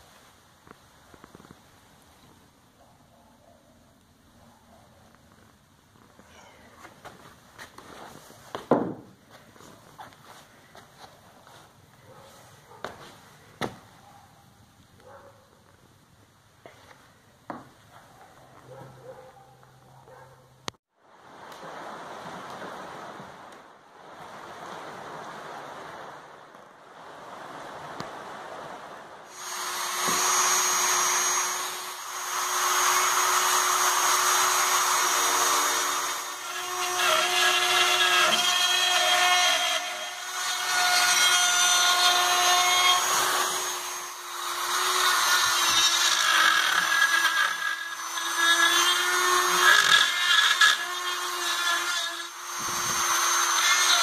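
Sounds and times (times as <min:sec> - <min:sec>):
low hiss: 0:00.0 - 0:18.2
rotary tool whining: 0:29.3 - 0:54.0.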